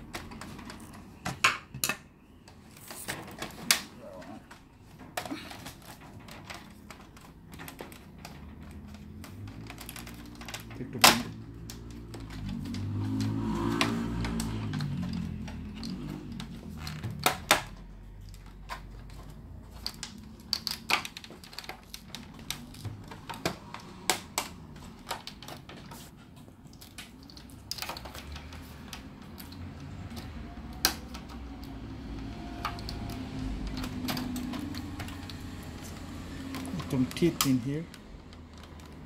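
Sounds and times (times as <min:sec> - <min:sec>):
plastic cover clicking and snapping: 0:00.0 - 0:39.0.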